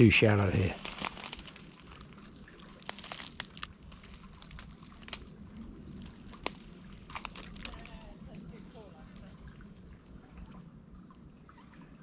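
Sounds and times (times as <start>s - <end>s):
footsteps through undergrowth: 0.0s - 8.1s
twigs cracking and rustling: 0.0s - 8.4s.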